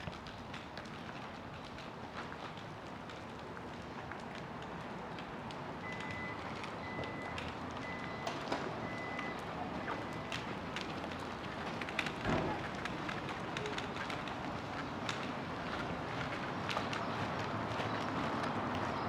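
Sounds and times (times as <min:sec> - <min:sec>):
footsteps on pavement: 0:00.1 - 0:19.0
reversing alarm beeping: 0:05.9 - 0:10.4.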